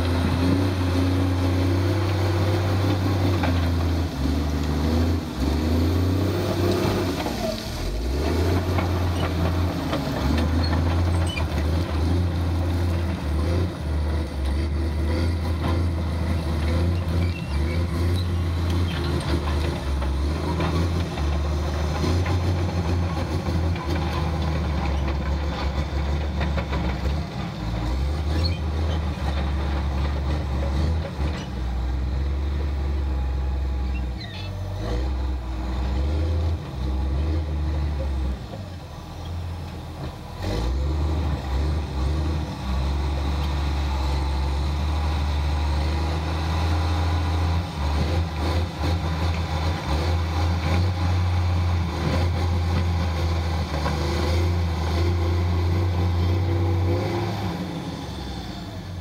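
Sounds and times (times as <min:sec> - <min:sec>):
diesel engine droning: 0:00.0 - 0:59.0.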